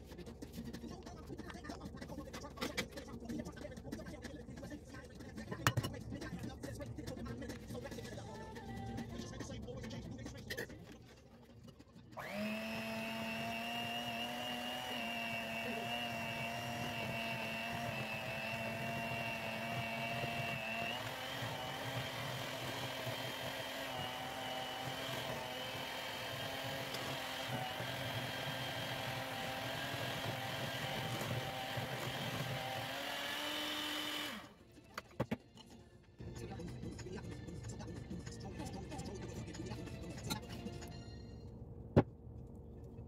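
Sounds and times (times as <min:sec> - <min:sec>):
electric hand mixer whine: 0:12.2 - 0:34.6.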